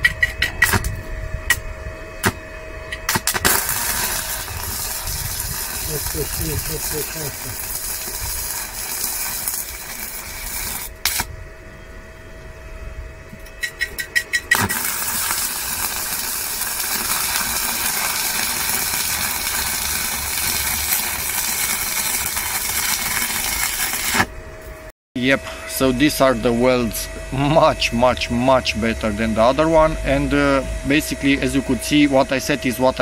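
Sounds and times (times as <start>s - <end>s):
welding arc hissing: 3.1s - 11.3s, 14.5s - 24.3s.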